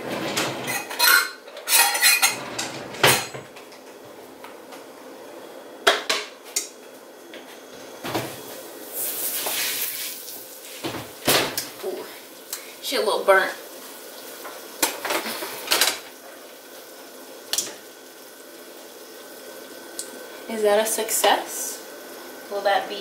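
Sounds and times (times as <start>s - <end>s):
metal kitchenware clattering: 0.1s - 3.5s.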